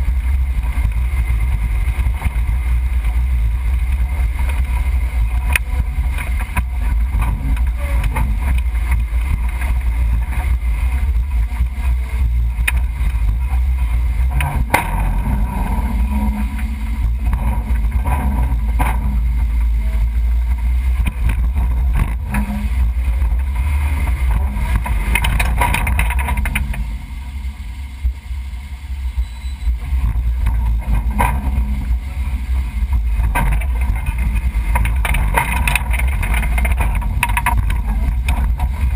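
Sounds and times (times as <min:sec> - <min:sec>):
engine low rumble: 0:00.0 - 0:38.9
sharp knocks and rattles: 0:00.6 - 0:27.6, 0:29.7 - 0:38.9.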